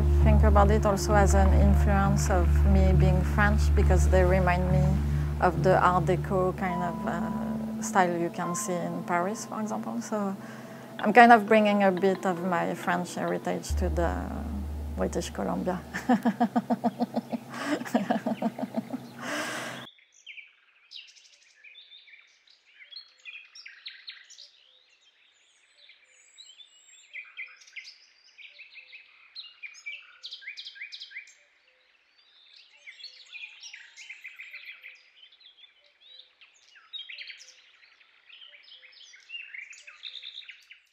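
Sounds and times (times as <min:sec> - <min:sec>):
songbirds chirping and trilling: 0:06.1 - 0:40.9
woman laughing: 0:15.9 - 0:19.9.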